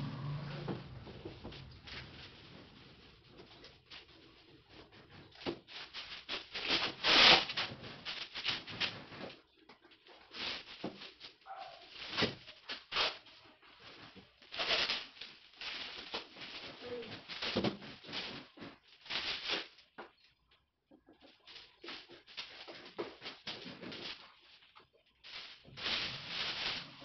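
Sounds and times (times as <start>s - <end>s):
plastic wrap crinkling: 0.2s - 27.0s.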